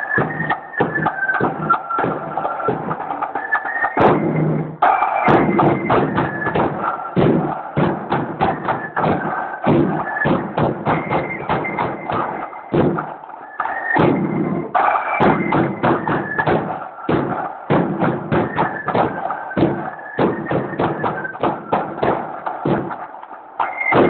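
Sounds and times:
snare drums playing: 0:00.0 - 0:24.0
bass drum beat: 0:04.0 - 0:13.2, 0:14.0 - 0:23.1.

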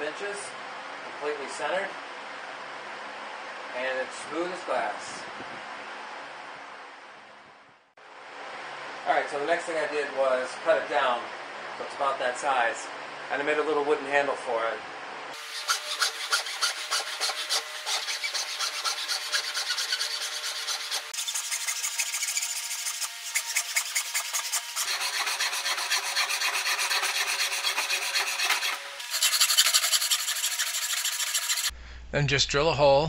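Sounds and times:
hacksaw cutting metal rod: 0:15.4 - 0:31.7.

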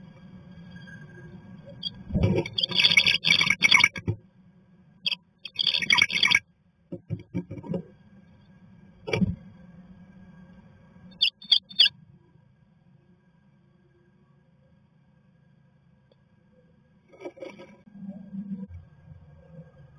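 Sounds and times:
short high-pitched sounds: 0:01.8 - 0:04.0, 0:05.5 - 0:06.4, 0:11.2 - 0:11.9.

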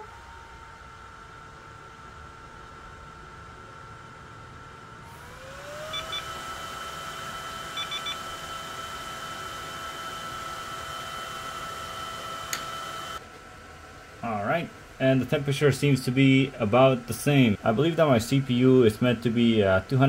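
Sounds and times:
small fan whining: 0:00.0 - 0:20.0
short electronic beeps: 0:05.9 - 0:06.3, 0:07.8 - 0:08.2.

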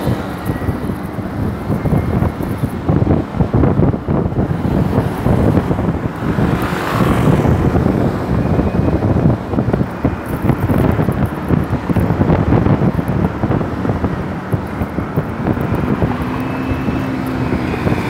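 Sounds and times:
wind buffeting microphone: 0:00.0 - 0:18.0
car passing: 0:04.4 - 0:09.3.

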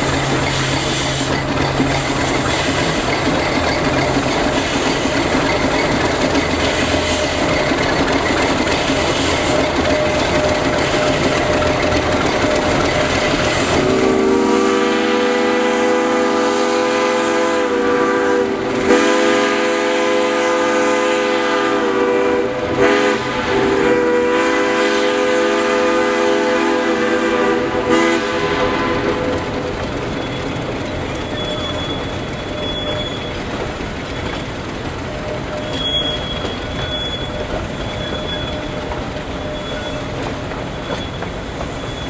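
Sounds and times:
train running: 0:00.0 - 0:42.0
steam locomotive chime whistle: 0:08.6 - 0:33.5, 0:35.1 - 0:42.0.

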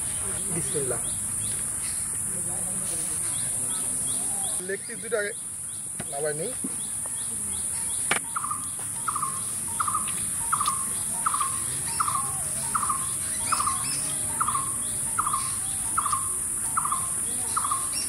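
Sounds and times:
bird calling: 0:03.1 - 0:18.0
high-pitched insect drone: 0:07.6 - 0:18.0.

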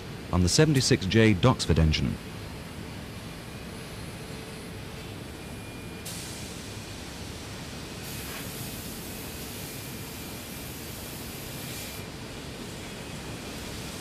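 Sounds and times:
steady hiss: 0:06.1 - 0:12.8.

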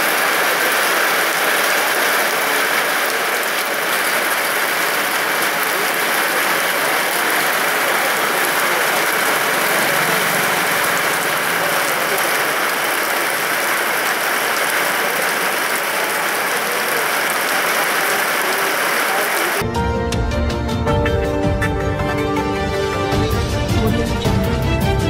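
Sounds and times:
heavy rain splashing into water: 0:00.0 - 0:19.6.

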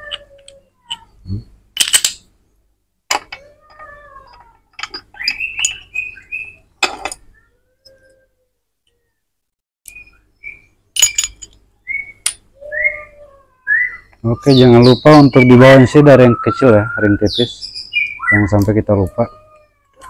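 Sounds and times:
high chirps and whistles: 0:05.1 - 0:06.7, 0:09.9 - 0:18.7
metallic clinks of gears: 0:11.0 - 0:11.6.

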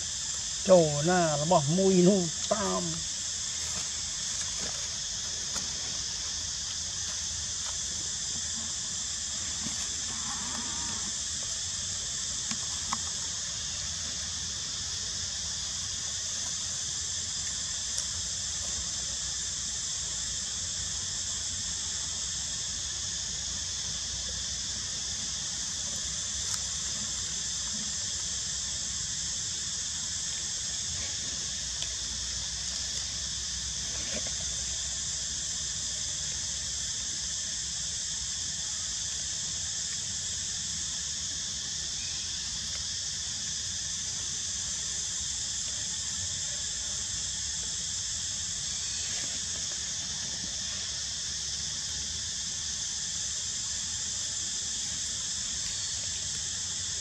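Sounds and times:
insect chorus drone: 0:00.0 - 0:57.0.

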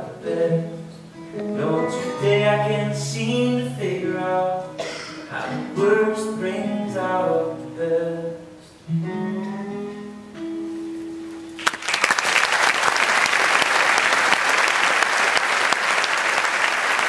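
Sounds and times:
guitars playing: 0:00.0 - 0:11.7
audience applauding: 0:11.6 - 0:17.0.

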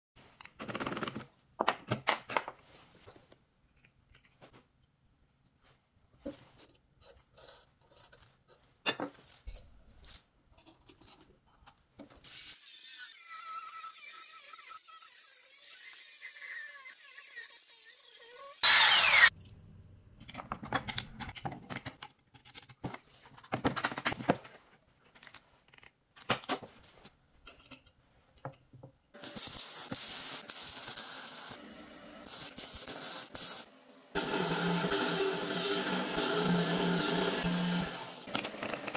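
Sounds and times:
power tool running: 0:18.5 - 0:19.3, 0:34.1 - 0:38.9
welding hiss: 0:29.2 - 0:31.6.

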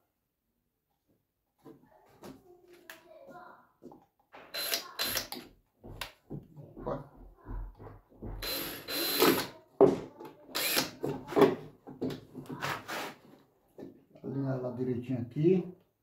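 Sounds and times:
cordless drill driving screws: 0:04.5 - 0:05.5, 0:08.4 - 0:09.6, 0:10.5 - 0:11.1.

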